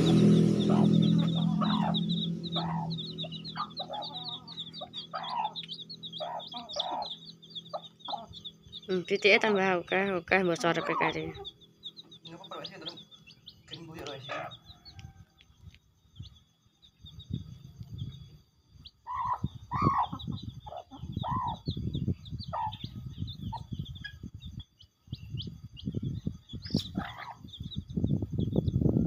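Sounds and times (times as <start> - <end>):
low rumble: 0.0 - 14.6
hen clucking: 0.0 - 15.1, 19.0 - 24.2, 26.7 - 27.8
chicks peeping: 0.0 - 29.0.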